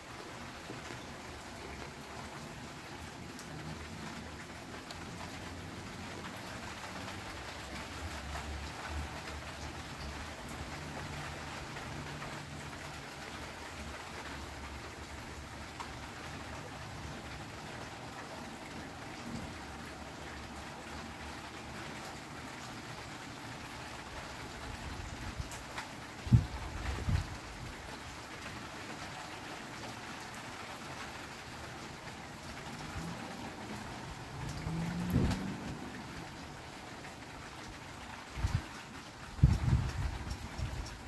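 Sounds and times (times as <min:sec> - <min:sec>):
steady rain: 0:00.0 - 0:41.0.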